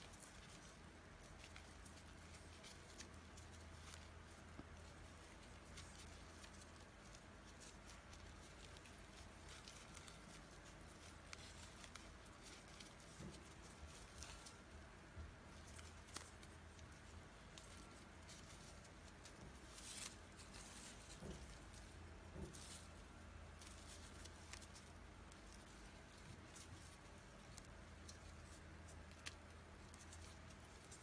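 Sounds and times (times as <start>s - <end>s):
low steady hum: 0.0s - 31.0s
yarn rustling: 0.0s - 31.0s.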